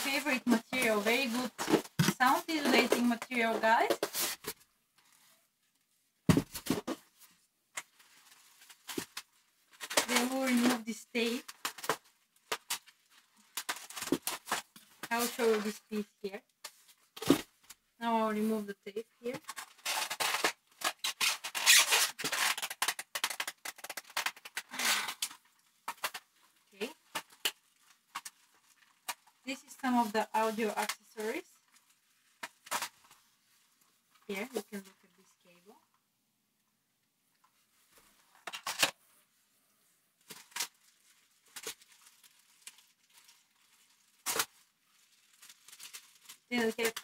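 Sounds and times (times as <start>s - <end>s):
packing material rustling: 0.0s - 5.4s, 6.3s - 15.9s, 19.2s - 34.8s, 40.2s - 47.0s
packing tape ripping off cardboard: 11.5s - 15.4s, 19.4s - 26.3s, 32.4s - 33.1s, 44.2s - 44.6s.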